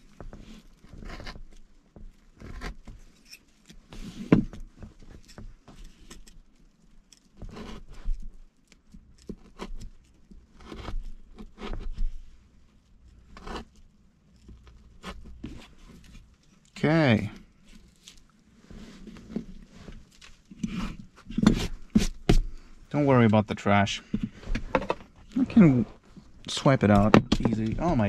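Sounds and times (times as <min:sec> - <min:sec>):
blade scraping and rustling: 0:02.2 - 0:04.4
plastic parts clicking and knocking: 0:24.1 - 0:25.2, 0:26.8 - 0:28.0.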